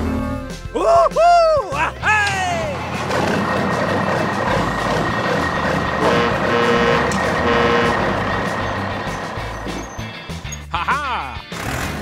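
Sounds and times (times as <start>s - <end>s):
heavy truck engine running: 1.8s - 10.8s, 11.5s - 12.0s
reversing alarm beeping: 4.8s - 10.2s.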